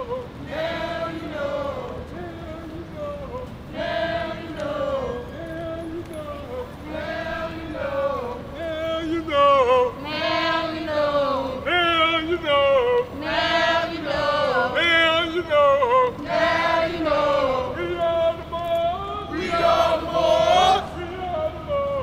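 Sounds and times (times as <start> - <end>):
group of voices chanting: 19.3 - 21.2.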